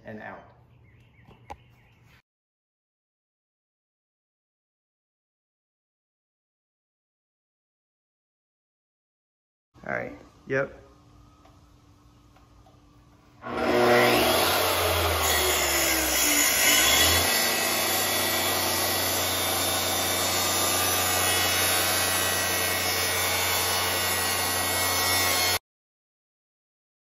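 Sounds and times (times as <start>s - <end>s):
track saw cutting plywood: 13.4s - 25.6s.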